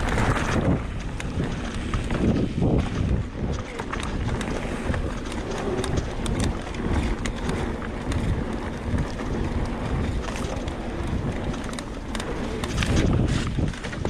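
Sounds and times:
tyre rumble on dirt: 0:00.0 - 0:11.6
bike clicks and rattles: 0:00.0 - 0:14.0
wind buffeting microphone: 0:00.0 - 0:14.0.

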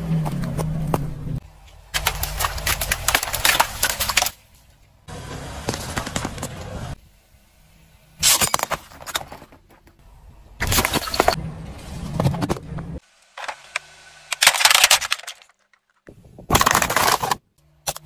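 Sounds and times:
tyre crushing objects: 0:01.9 - 0:04.4, 0:14.4 - 0:18.0.

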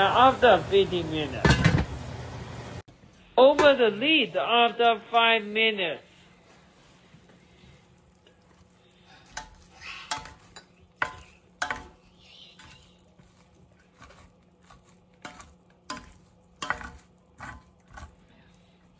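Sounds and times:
spoon clinking against metal pot: 0:09.3 - 0:12.9, 0:15.2 - 0:17.7.

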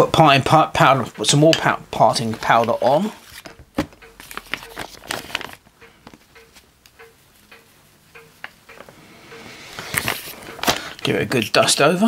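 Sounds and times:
plastic bag crinkling: 0:02.2 - 0:06.3
faint regular tick: 0:05.8 - 0:08.9.

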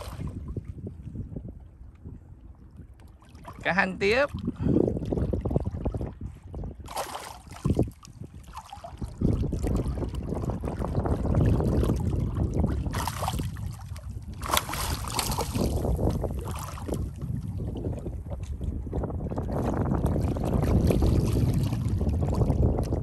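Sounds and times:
wind buffeting microphone: 0:00.0 - 0:23.0
fish splashing at water surface: 0:06.8 - 0:07.8, 0:12.9 - 0:17.0.

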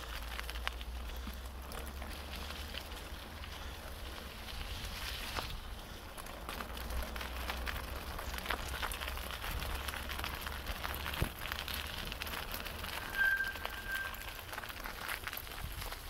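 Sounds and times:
bicycle tyres crunching gravel: 0:00.0 - 0:16.0
low rumble: 0:00.3 - 0:16.0
short high tone: 0:13.0 - 0:14.3.

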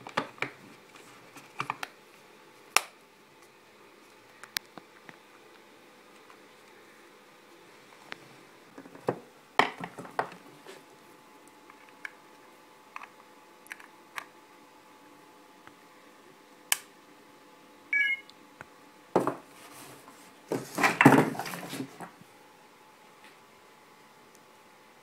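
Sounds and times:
short high beep: 0:18.0 - 0:18.3
handling and rustling noise: 0:19.2 - 0:22.2.

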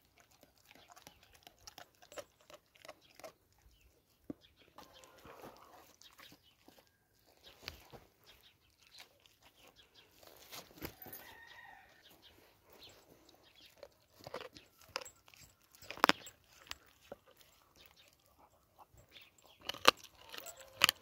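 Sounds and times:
dog chewing bone: 0:00.0 - 0:03.8, 0:13.5 - 0:21.0.

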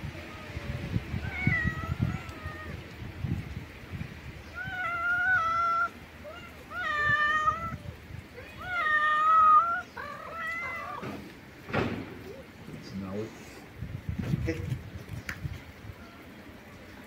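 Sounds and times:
cat meowing: 0:00.2 - 0:02.9, 0:04.5 - 0:11.3.

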